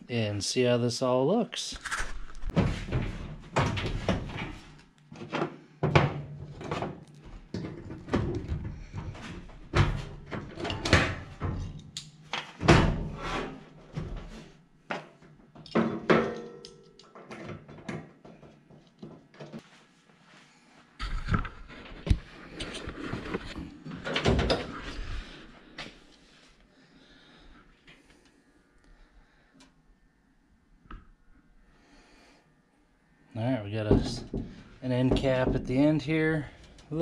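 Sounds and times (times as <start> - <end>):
metal knocks and clunks: 33.8 - 36.0.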